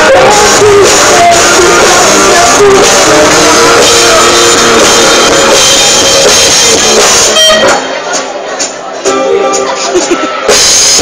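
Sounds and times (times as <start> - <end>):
electric guitars: 0.0 - 7.8
drum kit: 0.0 - 11.0.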